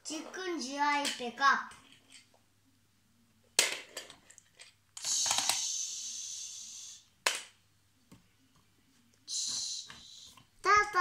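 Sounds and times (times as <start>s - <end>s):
plastic toy clicks: 3.6s - 5.7s
steady high hiss: 5.0s - 7.2s, 9.2s - 10.5s.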